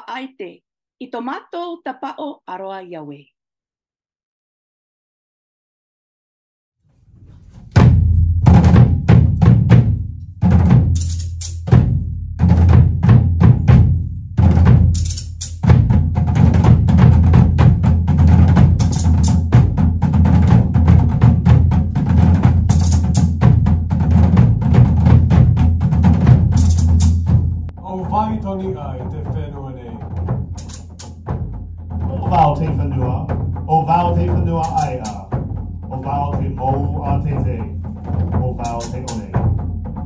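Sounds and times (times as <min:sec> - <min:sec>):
deep booming bass drum: 0:07.5 - 0:40.0
sticks striking slit log drums: 0:07.6 - 0:27.8, 0:30.0 - 0:32.7, 0:33.3 - 0:40.0.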